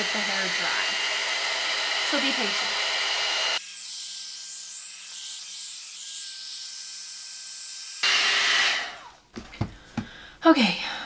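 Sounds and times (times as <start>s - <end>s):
hair dryer brush blowing air: 0.0s - 3.6s, 8.0s - 9.2s.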